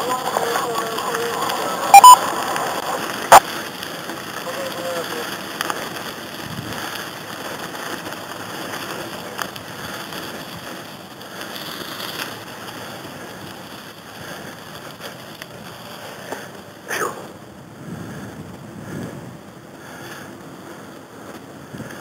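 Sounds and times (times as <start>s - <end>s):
wheels rolling on gravelly pavement: 0.0s - 22.0s
wind rushing over microphone: 6.0s - 10.9s, 17.3s - 22.0s.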